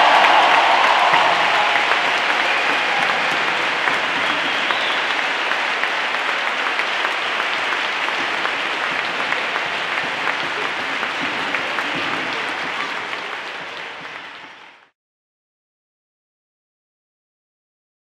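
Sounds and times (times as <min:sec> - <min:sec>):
crowd applauding: 0:00.0 - 0:14.9.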